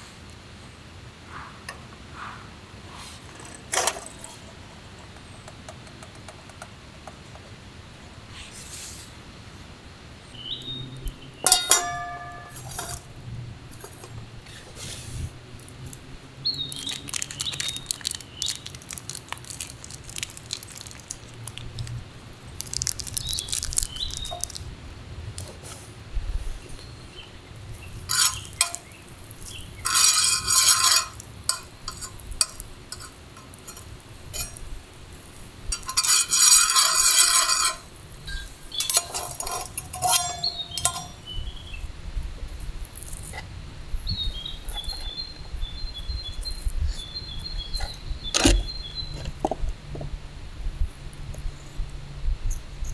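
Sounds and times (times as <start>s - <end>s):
bird chirping: 10.2s - 12.6s, 16.4s - 18.7s, 23.2s - 24.6s, 40.1s - 41.9s, 44.0s - 49.4s
sharp metal clink: 11.4s - 13.0s, 38.3s - 41.3s
metal cookware rattling: 11.4s - 13.1s, 35.7s - 41.2s.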